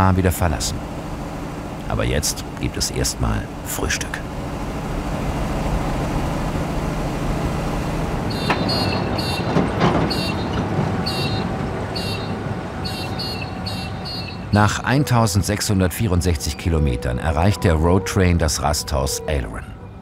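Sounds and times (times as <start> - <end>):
truck diesel engine droning: 0.0 - 20.0
short high squeaky chirps: 8.3 - 14.6.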